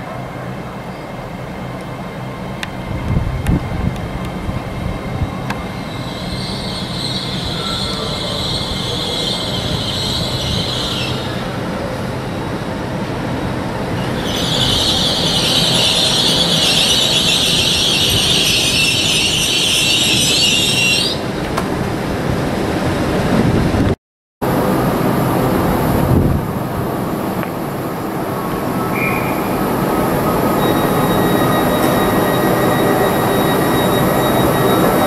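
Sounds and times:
low train rumble: 0.0s - 35.0s
train brakes squealing: 5.2s - 12.6s, 13.9s - 21.3s, 28.8s - 35.0s.

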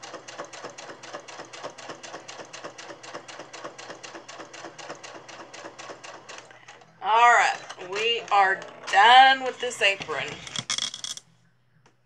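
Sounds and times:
sewing machine needle ticking: 0.0s - 6.6s
sewing machine motor hum: 0.0s - 10.6s.

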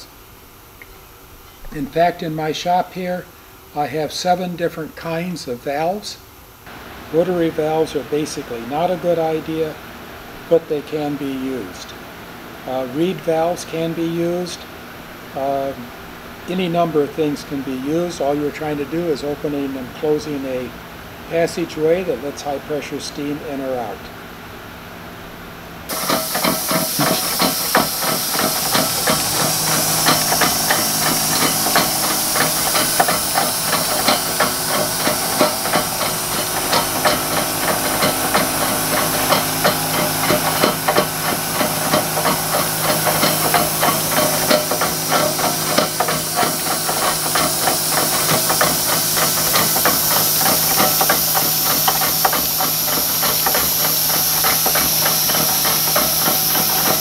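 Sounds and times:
knocking of engine parts: 25.9s - 57.0s
steam engine hissing puffs: 25.9s - 57.0s.

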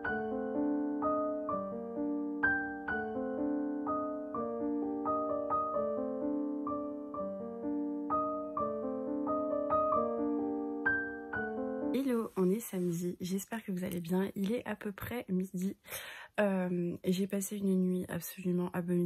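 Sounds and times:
soft piano tune: 0.0s - 12.4s.

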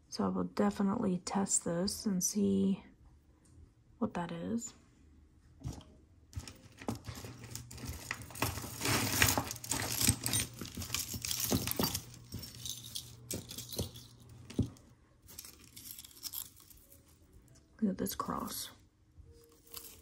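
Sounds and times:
metal chain necklace jingling: 7.4s - 17.2s, 19.4s - 20.0s.

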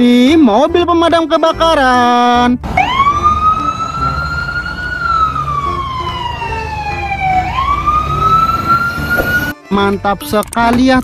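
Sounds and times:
fire engine siren wailing: 2.6s - 9.6s.

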